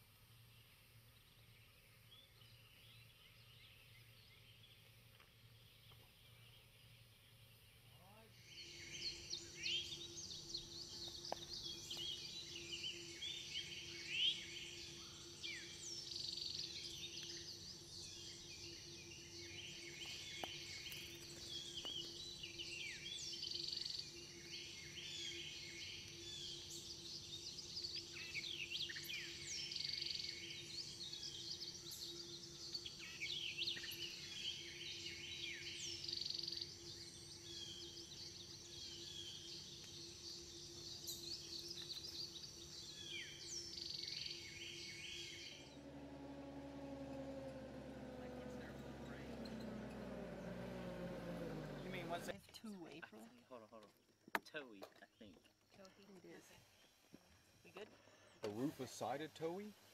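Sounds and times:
steady low hum: 0:07.1 - 0:52.4
birds chirping and calling: 0:08.1 - 0:52.4.

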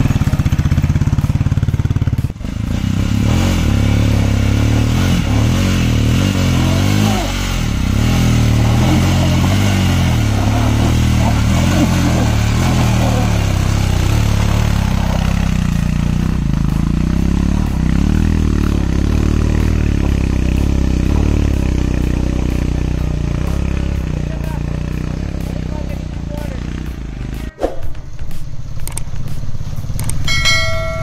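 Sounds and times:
motorcycle engine revving: 0:00.0 - 0:31.0
tyre noise: 0:04.7 - 0:24.9.

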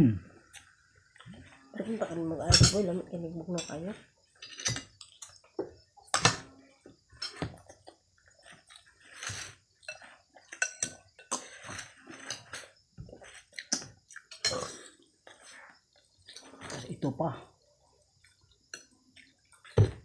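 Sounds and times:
chewing: 0:00.4 - 0:01.7, 0:04.3 - 0:05.6, 0:07.2 - 0:17.0, 0:17.8 - 0:19.8.

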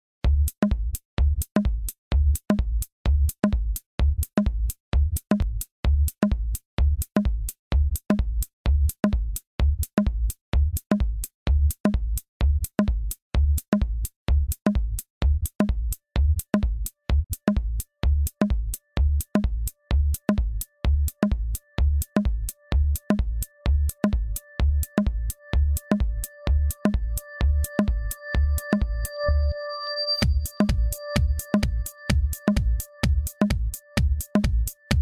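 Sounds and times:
steady drum beat: 0:00.2 - 0:28.8, 0:30.2 - 0:35.0
background music: 0:19.3 - 0:35.0.

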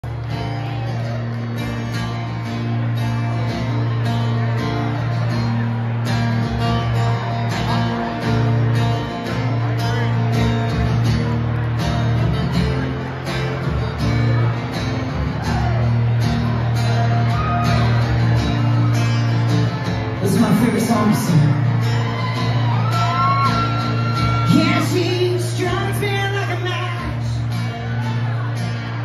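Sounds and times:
electric guitar: 0:00.0 - 0:29.0
strummed acoustic guitar: 0:00.0 - 0:29.0.

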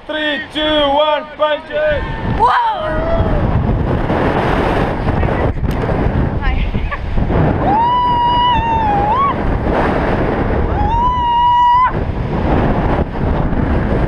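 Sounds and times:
wind rushing on microphone: 0:00.0 - 0:14.0
woman screaming: 0:02.4 - 0:03.4, 0:07.6 - 0:09.4, 0:10.7 - 0:12.0.

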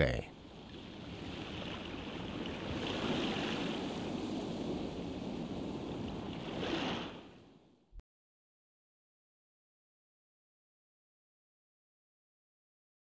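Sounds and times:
rough sea: 0:00.0 - 0:07.9
wind: 0:00.0 - 0:08.0.

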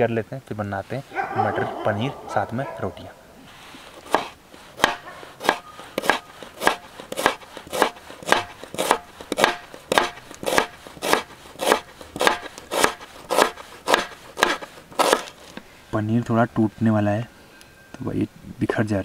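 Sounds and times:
knife slicing onion on board: 0:03.9 - 0:15.5.

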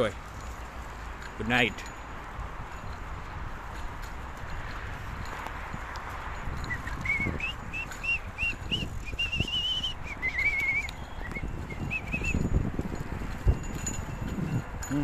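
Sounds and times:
person whistling a tune: 0:06.7 - 0:12.4.

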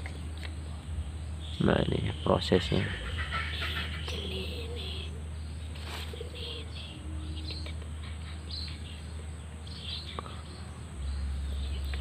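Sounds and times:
steady low hum: 0:00.0 - 0:12.0
bird chirps: 0:01.0 - 0:12.0.

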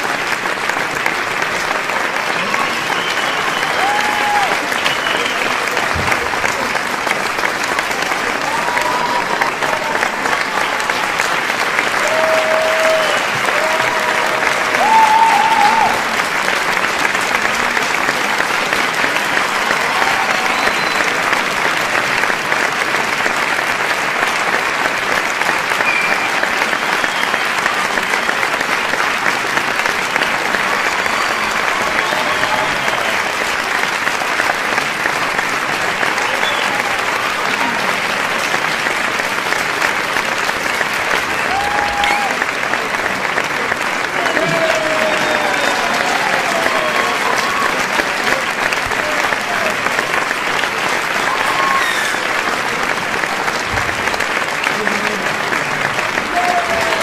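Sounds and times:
crowd applauding: 0:00.0 - 0:57.0
audience shouting and cheering: 0:02.2 - 0:06.7, 0:08.0 - 0:16.7, 0:18.7 - 0:21.7, 0:29.8 - 0:34.2, 0:35.7 - 0:38.1, 0:41.0 - 0:57.0.

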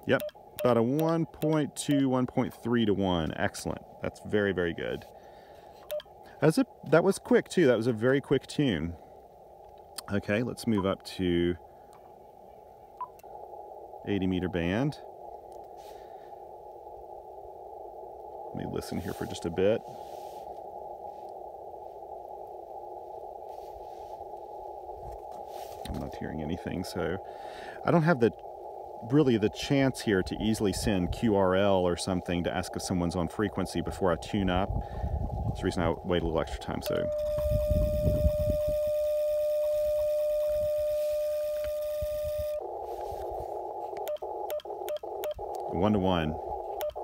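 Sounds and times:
radio band noise hiss: 0:00.0 - 0:47.0
steady single-pitch tone: 0:00.1 - 0:03.3, 0:05.8 - 0:06.2, 0:10.6 - 0:11.0, 0:12.5 - 0:13.3, 0:35.6 - 0:46.0, 0:46.6 - 0:47.0.

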